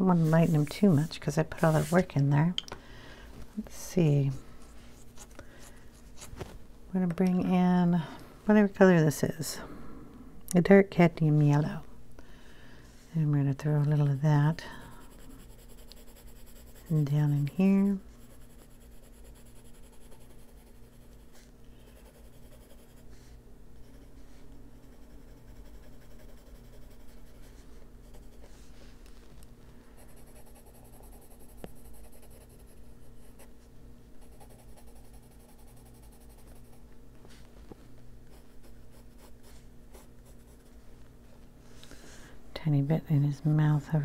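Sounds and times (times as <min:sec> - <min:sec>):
colored pencil scratching on paper: 0:00.0 - 0:02.1, 0:13.6 - 0:28.7, 0:30.0 - 0:33.6, 0:34.2 - 0:36.8
faint steady hum: 0:00.0 - 0:44.0.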